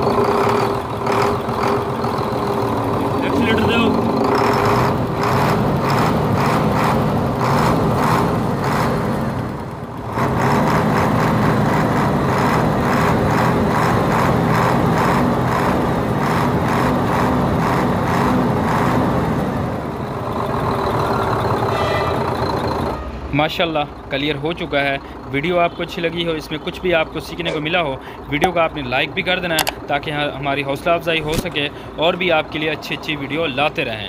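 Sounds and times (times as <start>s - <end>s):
cooling fan spinning: 0.0s - 21.7s
diesel truck engine running: 0.0s - 34.0s.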